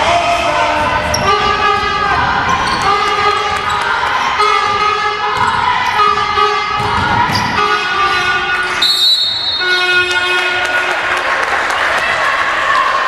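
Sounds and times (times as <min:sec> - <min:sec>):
horn-like tones: 0:00.0 - 0:11.2
basketball dribbling on wooden floor: 0:04.6 - 0:08.7.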